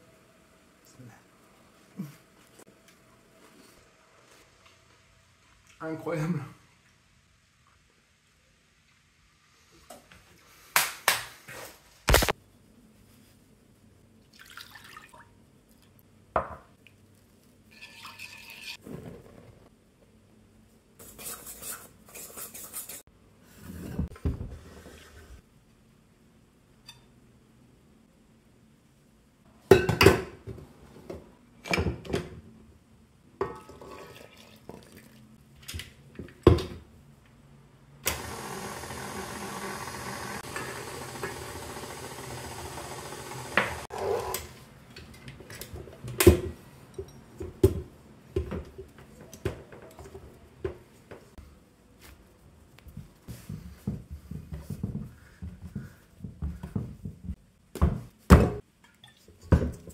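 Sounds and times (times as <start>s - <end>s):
stand mixer motor running: 38.1s - 44.3s.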